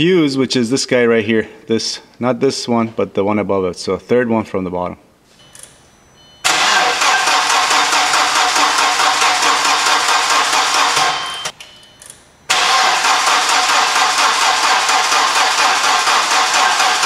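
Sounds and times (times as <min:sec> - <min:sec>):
engine cranking without starting: 0:06.4 - 0:11.4, 0:12.5 - 0:17.0.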